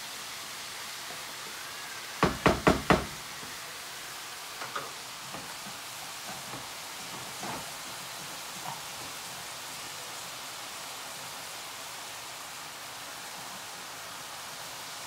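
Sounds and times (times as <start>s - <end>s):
wooden spatula knocking on pan: 2.2s - 3.2s.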